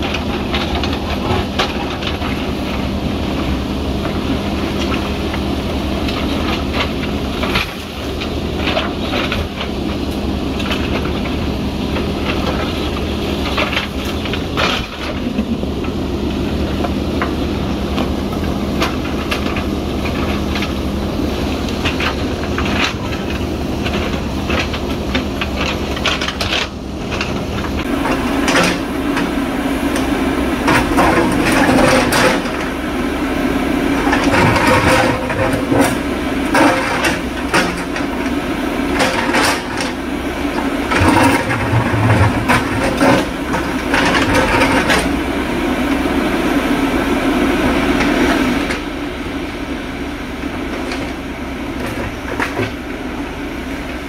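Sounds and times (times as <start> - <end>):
diesel engine under load: 0.0 - 54.0
bucket scraping through rock: 18.8 - 45.3.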